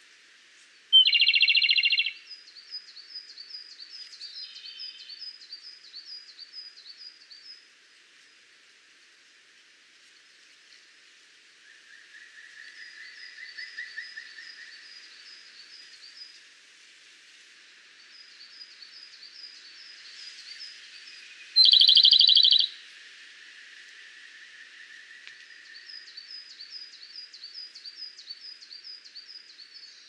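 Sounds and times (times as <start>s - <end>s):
bird singing trills: 0.9s - 7.4s, 20.5s - 22.8s.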